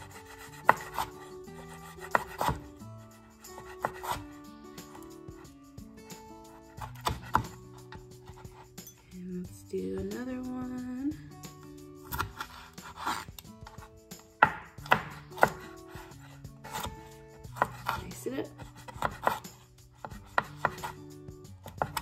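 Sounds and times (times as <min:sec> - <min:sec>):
knife tapping cutting board: 0:14.4 - 0:15.6.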